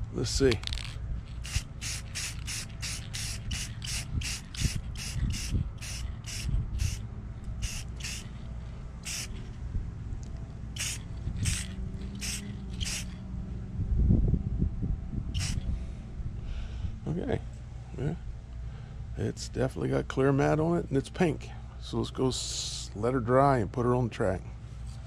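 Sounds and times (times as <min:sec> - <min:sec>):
spray can hissing bursts: 0:01.4 - 0:07.0, 0:07.6 - 0:08.4, 0:09.0 - 0:09.4, 0:10.8 - 0:13.2, 0:15.4 - 0:15.6.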